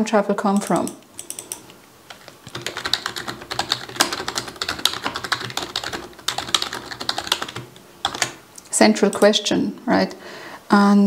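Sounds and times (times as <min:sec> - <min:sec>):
typing on computer keyboard: 0:00.5 - 0:08.4.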